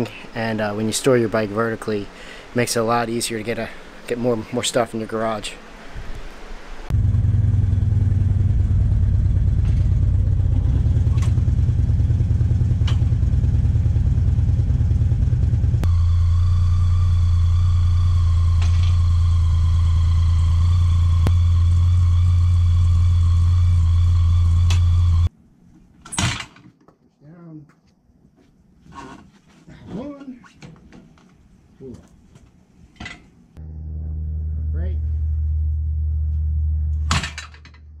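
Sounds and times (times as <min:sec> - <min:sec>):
motorcycle engine idling: 0:06.9 - 0:25.3.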